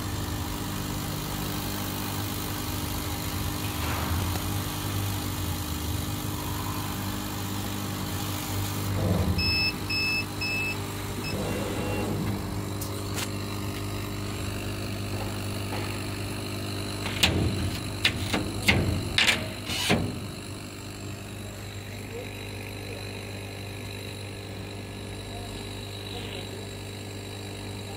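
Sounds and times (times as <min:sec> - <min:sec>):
laser cutter humming: 0:00.1 - 0:27.9
short electronic beeps: 0:09.2 - 0:12.2.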